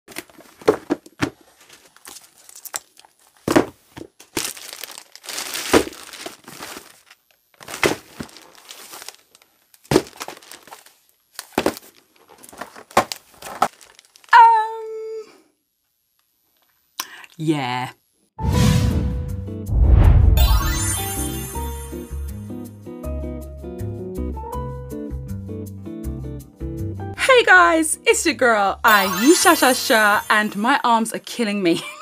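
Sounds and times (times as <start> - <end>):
packaging crinkling and rustling: 0.1 - 14.3.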